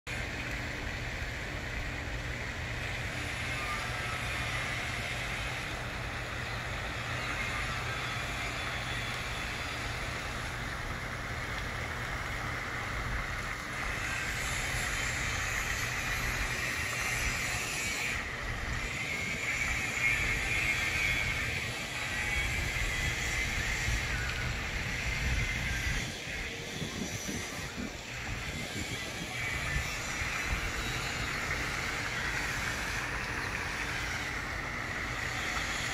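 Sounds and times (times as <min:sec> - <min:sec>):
constant outdoor hiss: 0:00.1 - 0:35.9
wind buffeting microphone: 0:12.9 - 0:33.0.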